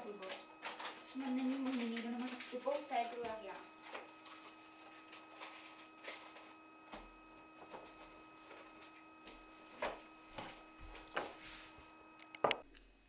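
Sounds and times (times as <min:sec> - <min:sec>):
paper gift bag rustling: 0:00.0 - 0:06.5
steady low hum: 0:00.0 - 0:13.0
person moving about: 0:00.8 - 0:11.9.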